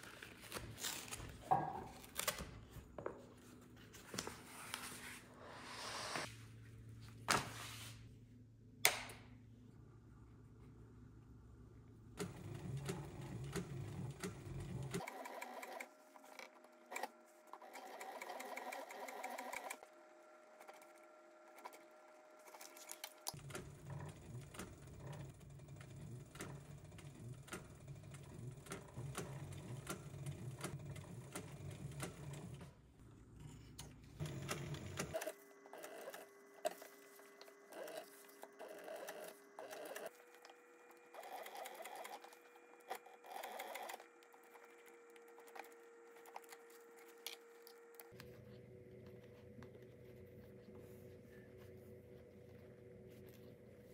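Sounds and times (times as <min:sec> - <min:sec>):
sewing machine stitching leather: 0:12.2 - 0:19.8, 0:22.4 - 0:32.7, 0:34.2 - 0:47.3.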